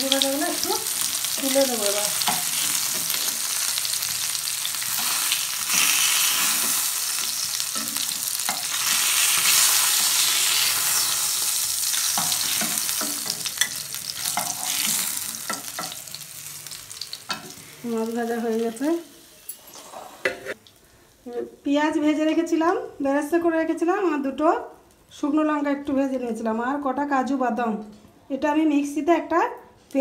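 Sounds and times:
fish frying in oil: 0:00.0 - 0:18.9.

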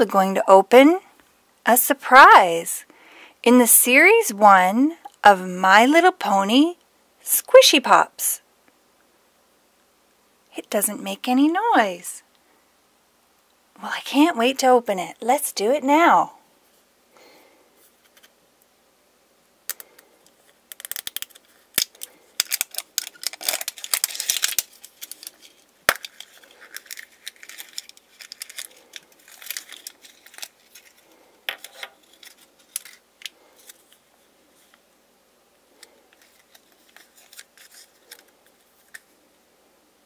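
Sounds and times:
foil packet crinkling: 0:20.5 - 0:34.7, 0:35.7 - 0:39.1
plastic capsule twisting clicks: 0:20.7 - 0:25.3.

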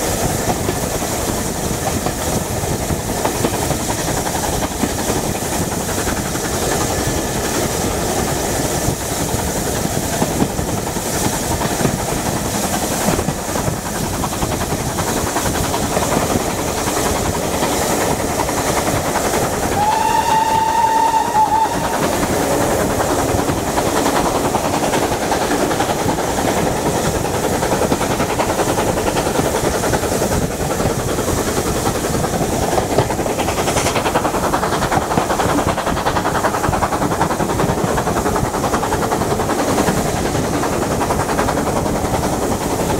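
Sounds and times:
rushing air: 0:00.0 - 0:42.9
train wheels on rails: 0:00.0 - 0:42.9
steam whistle: 0:19.7 - 0:22.3.

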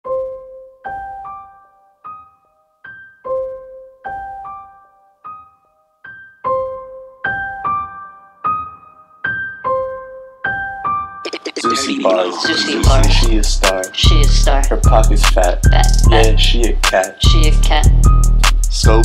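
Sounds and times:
piano-like keyboard melody: 0:00.0 - 0:19.0
low bass: 0:12.8 - 0:19.0.

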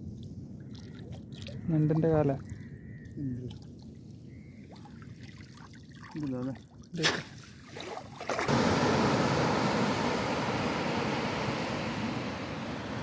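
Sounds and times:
waves washing onto beach: 0:08.4 - 0:13.0.

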